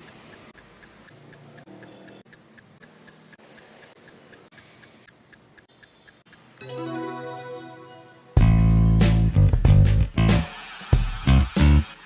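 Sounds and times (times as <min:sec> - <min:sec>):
clock ticking fast: 0:00.0 - 0:06.6.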